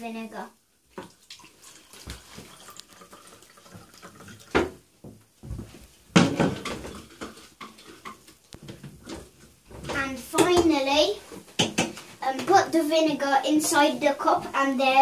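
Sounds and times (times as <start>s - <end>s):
liquid poured into plastic cup: 1.0s - 4.7s
cups and bottles clattering: 6.1s - 9.3s.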